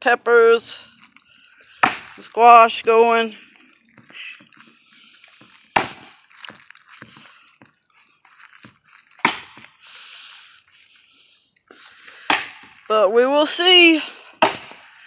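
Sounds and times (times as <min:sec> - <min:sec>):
axe chopping log: 0:01.8 - 0:03.3, 0:05.7 - 0:07.8, 0:08.6 - 0:09.8, 0:12.2 - 0:12.9, 0:14.3 - 0:15.0.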